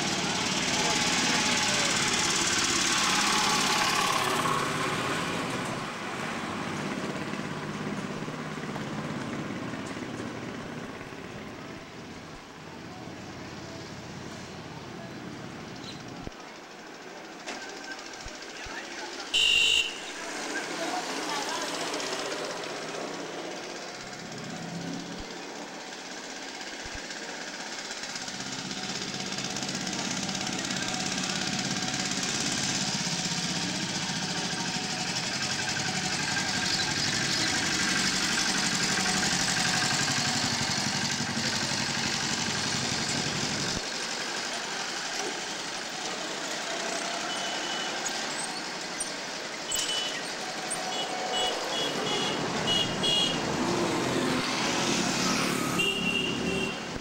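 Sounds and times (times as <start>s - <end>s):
three-wheeler engine passing: 0.0s - 57.0s
short high beeps: 49.7s - 50.2s.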